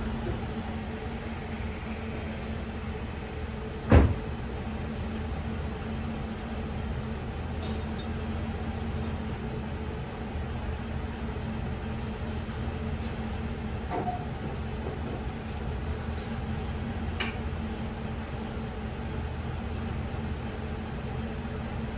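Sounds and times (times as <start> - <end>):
loud thump: 3.9 - 4.3.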